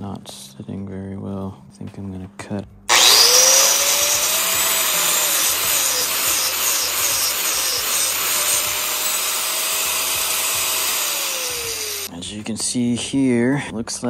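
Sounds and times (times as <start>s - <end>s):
angle grinder cutting steel: 2.9s - 12.1s.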